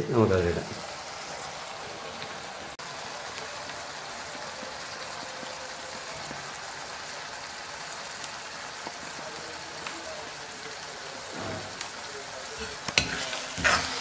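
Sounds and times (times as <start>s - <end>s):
food sizzling in a pan: 0.0s - 14.0s.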